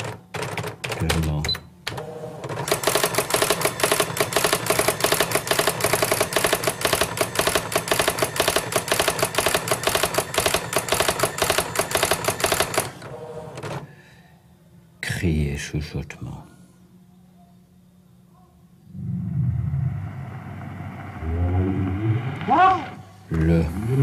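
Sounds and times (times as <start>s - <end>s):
dot-matrix printer clicking: 0.0s - 13.8s.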